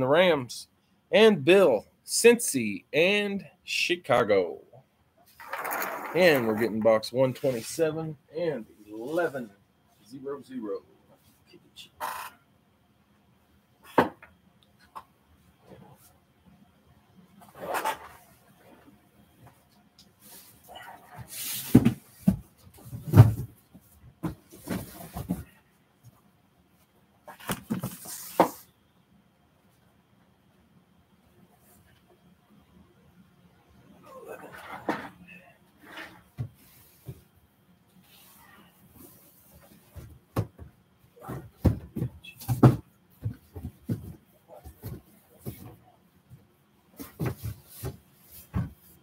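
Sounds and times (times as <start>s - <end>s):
papers rustling: 5.3s - 7.6s
cardboard boxes knocking and rustling: 21.1s - 25.5s, 39.4s - 45.8s, 47.0s - 49.0s.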